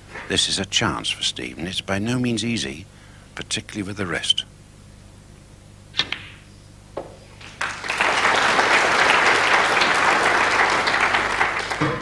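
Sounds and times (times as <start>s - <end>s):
sharp click of balls meeting: 6.0s - 6.4s
audience applause: 7.4s - 12.0s.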